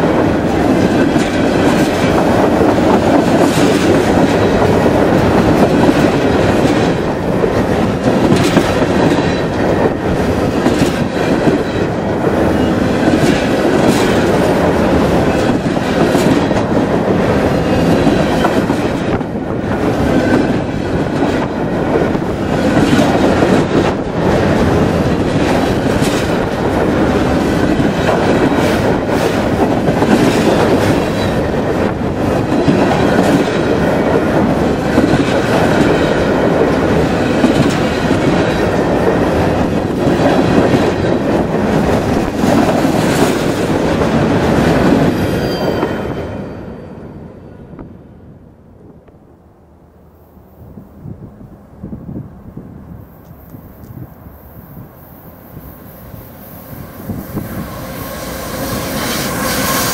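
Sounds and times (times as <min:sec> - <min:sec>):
clickety-clack over rail joints: 0:00.0 - 0:46.8
freight train rolling past: 0:00.0 - 0:59.9.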